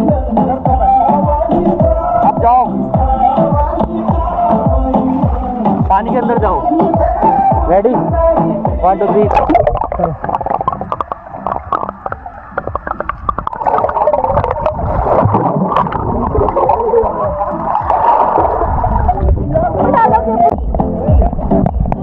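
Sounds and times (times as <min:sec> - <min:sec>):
muffled underwater gurgling: 0:01.4 - 0:22.0
underwater clicks: 0:01.6 - 0:04.3, 0:09.1 - 0:19.3, 0:20.5 - 0:22.0.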